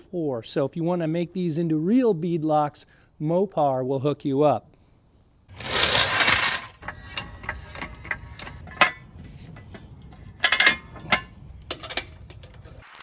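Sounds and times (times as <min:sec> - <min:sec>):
floor jack rolling over concrete: 0:05.5 - 0:12.2
sharp metal clanks: 0:05.6 - 0:12.8.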